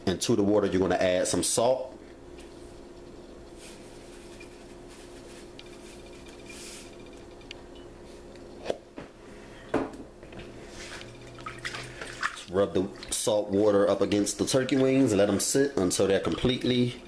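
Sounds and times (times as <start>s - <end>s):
low hum: 1.9s - 14.6s
faint rustling and scraping: 2.4s - 8.4s, 10.5s - 11.2s.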